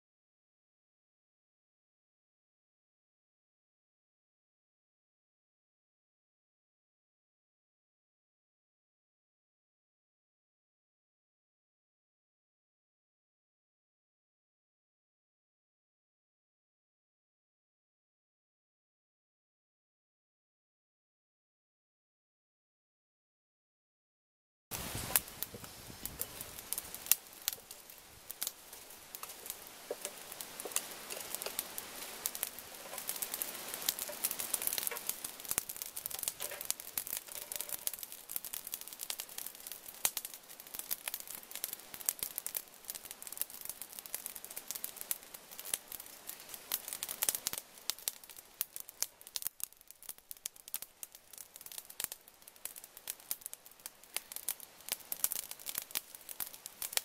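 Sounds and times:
charcoal crackling and popping: 24.7s - 57.0s
soft hiss: 24.7s - 57.0s.

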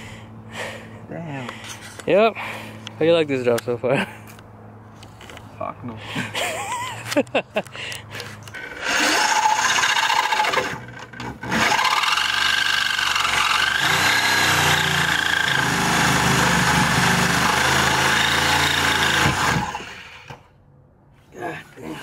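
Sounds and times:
reciprocating saw cutting steel: 8.5s - 20.5s.

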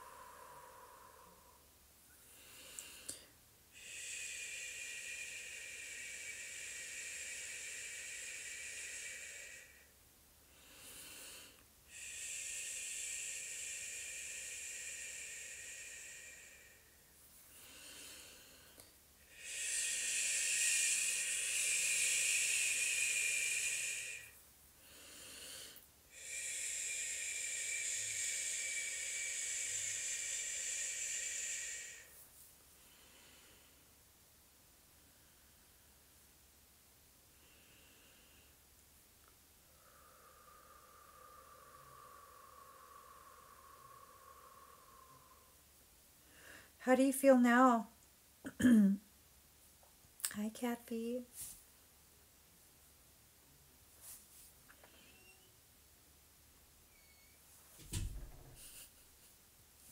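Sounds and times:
woman breathing deeply: 0.0s - 34.0s, 37.3s - 46.8s, 54.0s - 55.5s, 56.9s - 59.9s.

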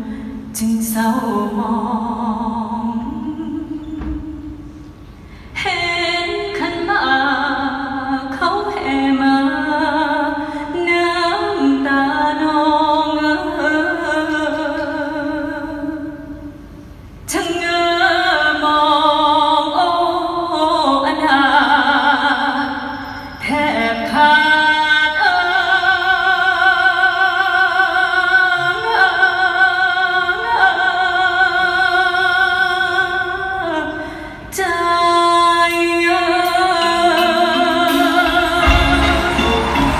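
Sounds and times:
woman singing through sound system: 0.0s - 4.9s, 5.6s - 16.7s, 17.3s - 39.9s.

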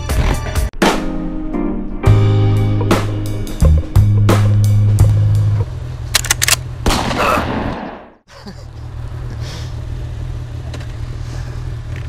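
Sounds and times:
motorcycle engine idling: 8.4s - 12.0s.

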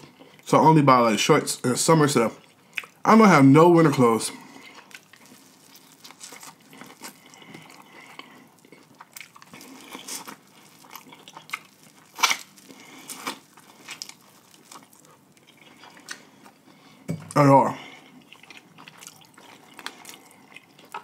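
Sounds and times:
person biting and chewing food: 2.4s - 3.0s, 4.4s - 21.0s.

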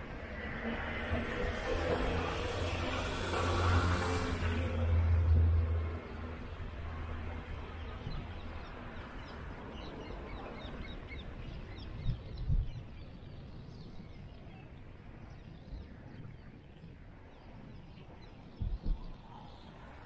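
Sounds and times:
outdoor background noise: 0.0s - 20.0s
small birds chirping: 7.8s - 20.0s.

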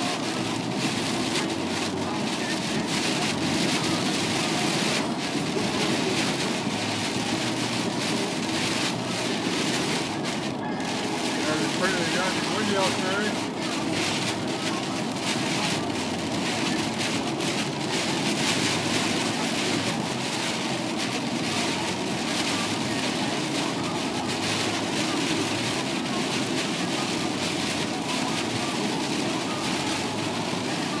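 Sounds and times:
heavy rain on vehicle roof: 0.0s - 31.0s
tyres hissing on wet road: 0.0s - 31.0s.

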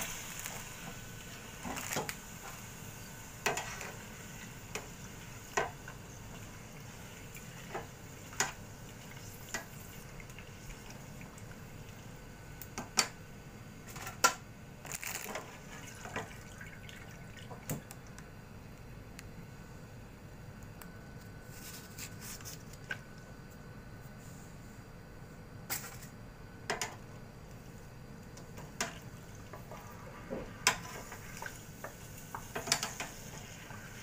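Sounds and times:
frying in hot oil sizzling: 0.0s - 12.4s, 28.6s - 34.0s
metal tongs tapping fryer: 31.8s - 33.2s.

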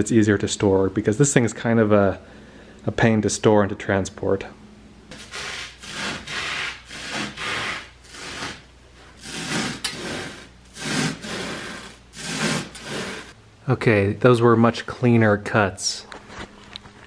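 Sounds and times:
knife sawing through foam: 5.1s - 13.4s.

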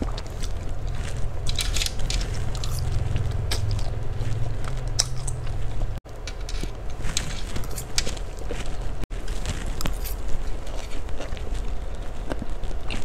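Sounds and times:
person chewing noodles: 0.0s - 6.0s, 6.7s - 13.0s
steady low hum: 0.0s - 13.0s
fork clicks: 1.5s - 3.9s.

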